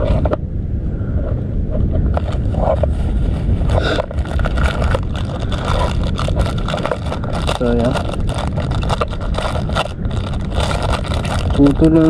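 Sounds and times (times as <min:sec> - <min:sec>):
wind buffeting microphone: 0:00.0 - 0:12.0
handling clicks and rubbing: 0:02.1 - 0:12.0.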